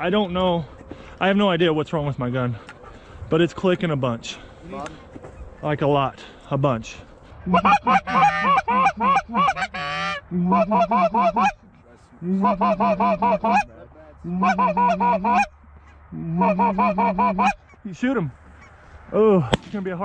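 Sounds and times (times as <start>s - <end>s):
goose honking: 7.4s - 18.8s.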